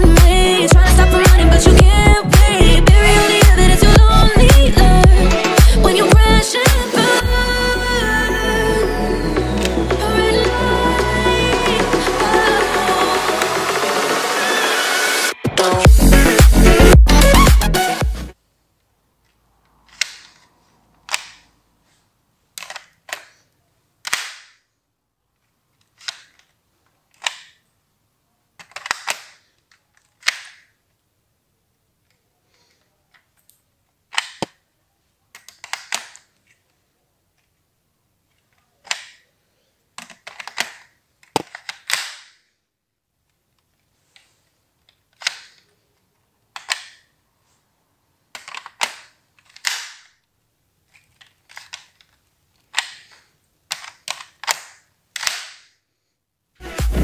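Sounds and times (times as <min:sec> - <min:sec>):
plastic bricks clicking: 0:19.2 - 0:21.5, 0:22.5 - 0:24.6, 0:25.4 - 0:27.7, 0:28.6 - 0:30.9, 0:33.2 - 0:34.6, 0:35.3 - 0:36.7, 0:38.3 - 0:39.4, 0:40.0 - 0:42.5, 0:44.8 - 0:45.7, 0:46.5 - 0:47.2, 0:48.3 - 0:55.8.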